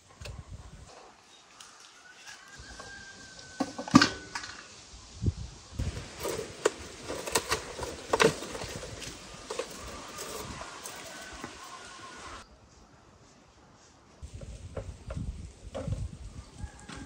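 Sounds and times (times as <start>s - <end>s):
leaves rustling: 0.9s - 12.4s
branches knocking and clicking: 5.8s - 11.8s.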